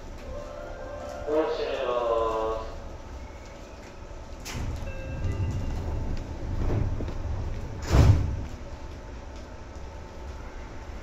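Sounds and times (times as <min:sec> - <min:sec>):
loud brief thud: 0:07.8 - 0:08.4.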